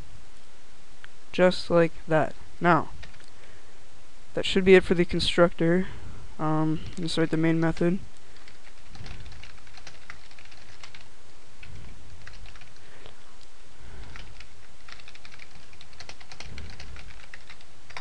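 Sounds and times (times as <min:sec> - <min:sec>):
background hiss: 0:00.0 - 0:18.0
typing on computer keyboard: 0:03.0 - 0:03.3, 0:08.4 - 0:12.8, 0:14.0 - 0:18.0.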